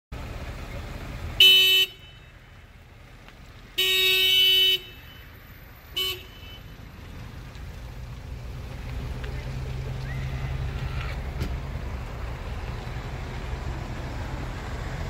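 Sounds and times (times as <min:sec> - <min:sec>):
low vehicle rumble: 0:00.1 - 0:15.0
car horn honking: 0:01.4 - 0:02.4, 0:03.8 - 0:05.3, 0:05.9 - 0:06.8.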